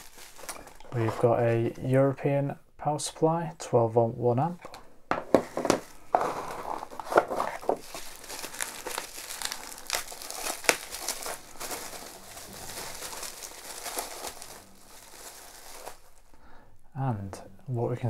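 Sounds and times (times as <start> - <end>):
bubble wrap crinkling: 0.0 - 2.0, 5.3 - 16.4.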